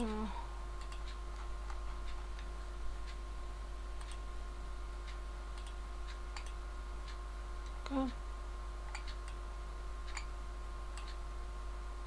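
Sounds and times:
low electrical hum: 0.0s - 12.0s
computer mouse clicks: 0.8s - 2.2s, 4.0s - 4.2s, 5.1s - 7.8s, 8.9s - 9.4s, 10.1s - 10.3s, 11.0s - 11.2s.

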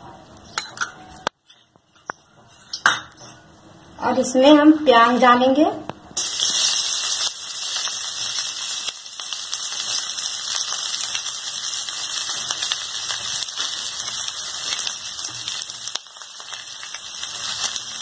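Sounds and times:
onions sizzling in oil: 6.2s - 18.0s.

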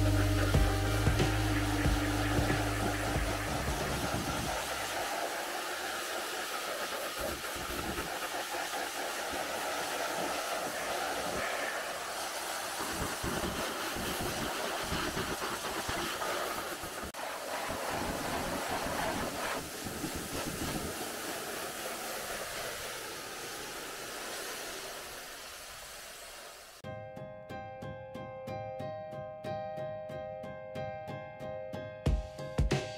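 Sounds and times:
pressure washer spraying water: 0.0s - 26.8s.

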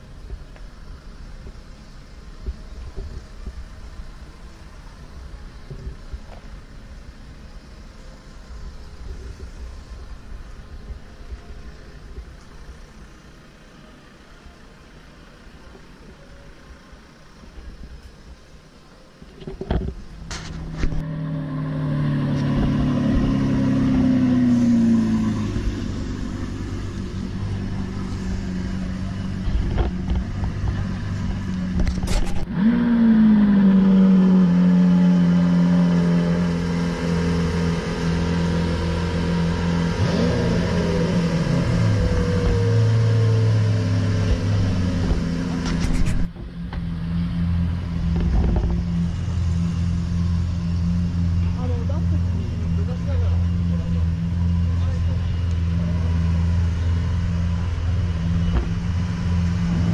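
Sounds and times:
car engines idling: 0.0s - 59.9s
engine revving: 19.6s - 59.9s.

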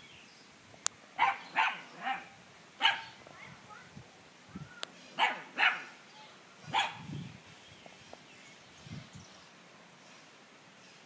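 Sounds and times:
dog barking: 1.2s - 3.2s, 5.2s - 6.0s, 6.7s - 7.1s.

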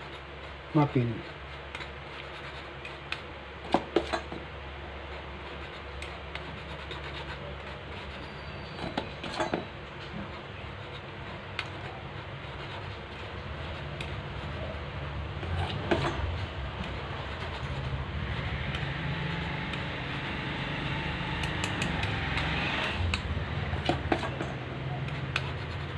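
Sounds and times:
steady low rumble: 9.7s - 25.9s
metal on metal clicks: 21.4s - 24.6s.

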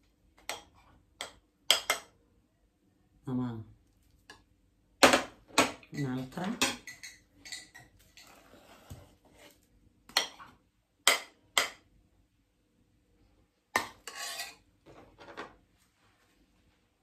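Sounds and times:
metal and china clinking: 5.9s - 8.3s
tongs scraping metal pan: 13.8s - 14.6s.

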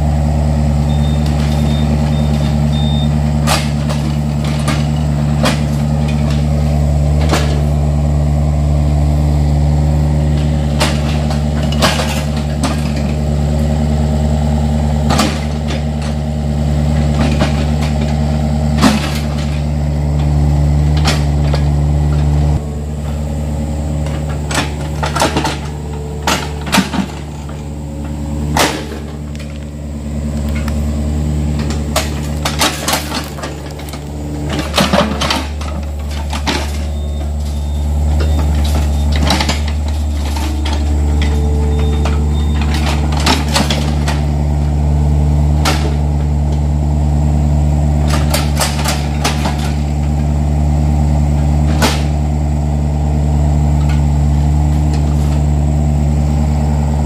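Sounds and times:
excavator diesel engine running: 0.0s - 57.0s
excavator bucket clanks and knocks: 1.0s - 7.8s, 10.2s - 13.3s, 15.0s - 16.3s, 16.9s - 46.7s, 48.0s - 50.3s, 51.4s - 52.3s.

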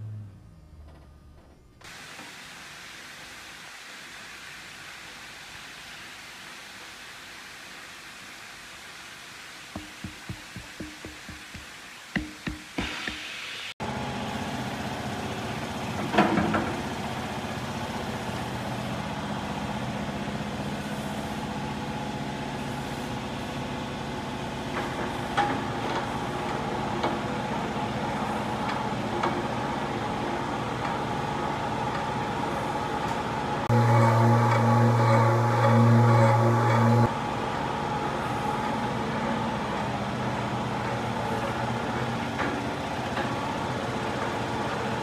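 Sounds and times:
knocks and clanks: 9.7s - 13.3s
machine humming: 26.2s - 44.0s.

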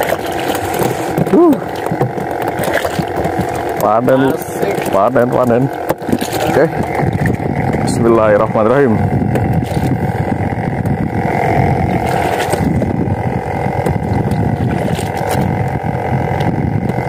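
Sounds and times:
boat engine humming: 0.0s - 17.0s
water noise: 0.0s - 17.0s
wind noise: 4.2s - 17.0s.

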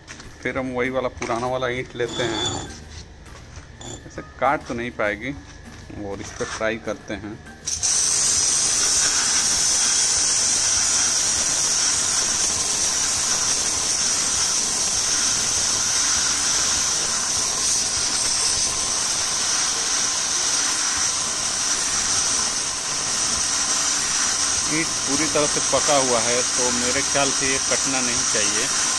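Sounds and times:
pressure washer spraying water: 7.7s - 28.9s.

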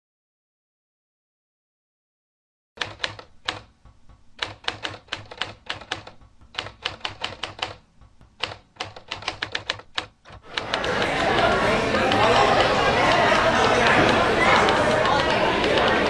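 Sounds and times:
typewriter keys clacking: 2.8s - 3.7s, 4.4s - 16.0s.

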